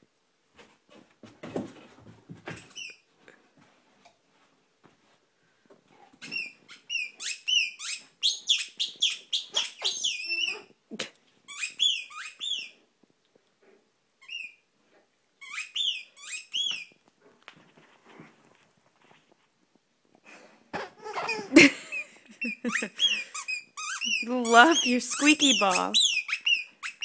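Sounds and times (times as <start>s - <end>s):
squeaky ball squeaking: 2.6s - 3.0s, 6.2s - 10.7s, 11.5s - 12.8s, 14.2s - 14.6s, 15.4s - 17.0s, 21.1s - 27.0s.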